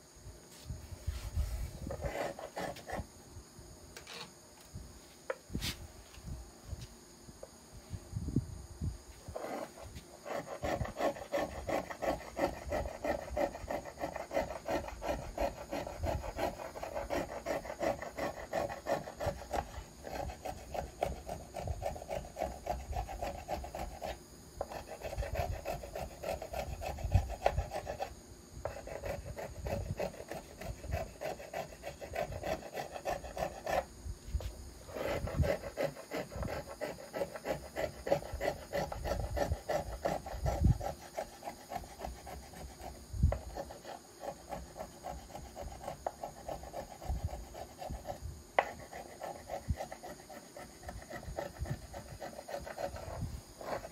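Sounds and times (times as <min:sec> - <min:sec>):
hand plane rasping on wood: 0:01.9 - 0:03.0, 0:09.4 - 0:33.9, 0:34.9 - 0:53.9.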